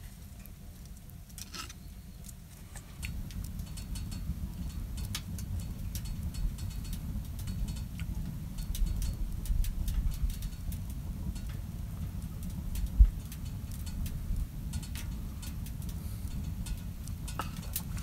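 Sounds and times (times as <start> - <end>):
stove low rumble: 0.0 - 18.0
wood fire crackling and popping: 0.0 - 18.0.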